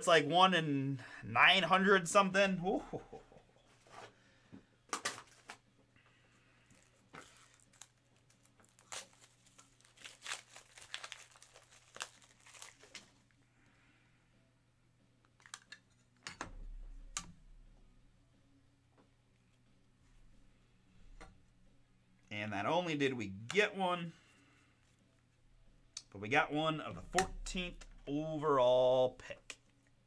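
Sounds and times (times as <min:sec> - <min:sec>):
wrappers crinkling: 0:06.6 - 0:13.4.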